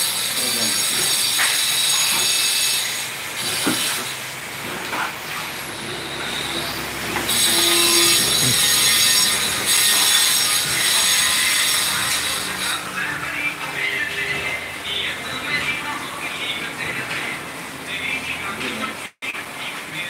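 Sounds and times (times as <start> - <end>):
power tool whining: 0.0 - 13.3.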